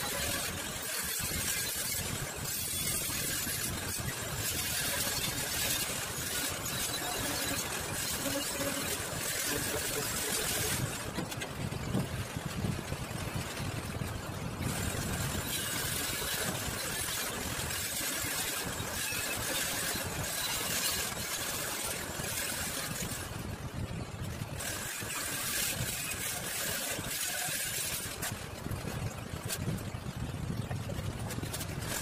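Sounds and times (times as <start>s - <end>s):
angle grinder grinding metal: 0.0s - 11.4s, 14.6s - 23.4s, 24.6s - 28.4s.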